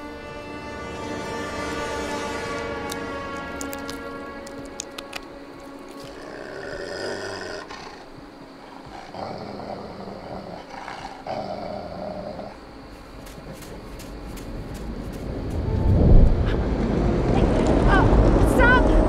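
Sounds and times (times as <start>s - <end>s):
animal growling: 6.0s - 12.7s.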